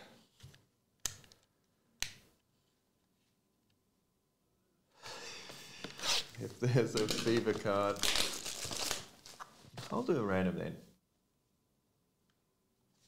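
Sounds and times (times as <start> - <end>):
plastic wrapping crinkling: 6.8 - 10.0.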